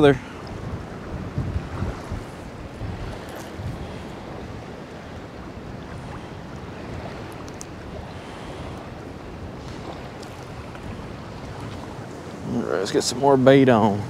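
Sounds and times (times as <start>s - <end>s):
small waves lapping: 0.0s - 14.0s
wind buffeting microphone: 0.0s - 14.0s
faint ticks: 7.3s - 7.8s.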